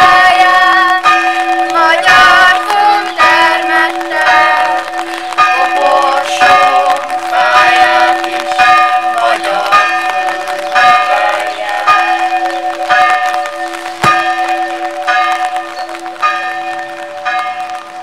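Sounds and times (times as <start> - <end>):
church bells pealing: 0.0 - 18.0.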